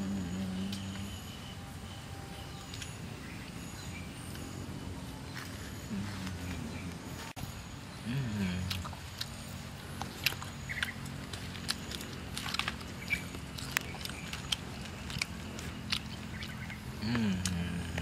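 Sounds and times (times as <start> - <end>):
steady low hum: 0.0 - 18.0
chewing clicks and smacks: 8.6 - 18.0.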